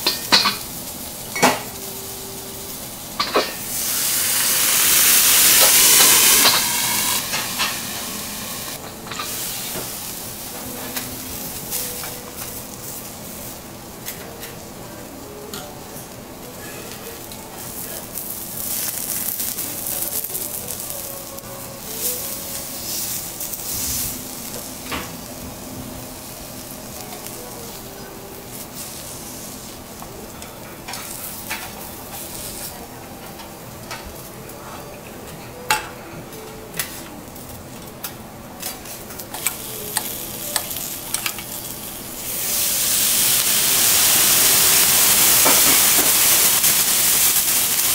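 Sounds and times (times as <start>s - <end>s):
steam hissing: 0.0s - 13.8s, 16.6s - 29.9s, 39.3s - 47.9s
lobster sizzling on griddle: 0.0s - 34.3s, 36.8s - 47.9s
knife and fork scraping metal: 5.6s - 7.8s.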